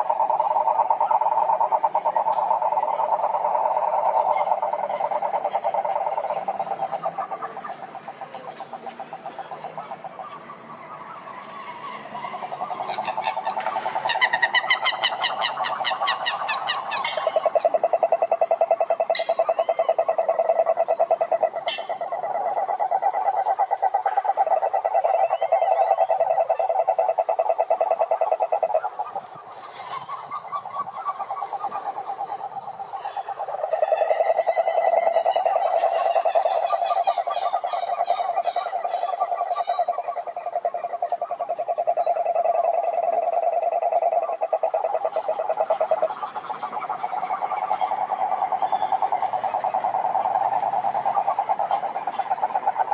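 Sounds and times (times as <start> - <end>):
toads trilling: 0.0 - 52.9
high-pitched fast toad trills: 33.0 - 52.9.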